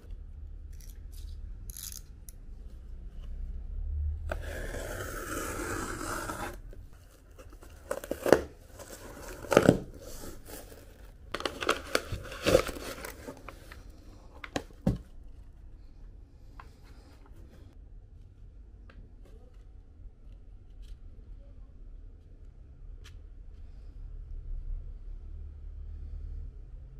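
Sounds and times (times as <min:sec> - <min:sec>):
cardboard package tearing: 0:07.3 - 0:13.6.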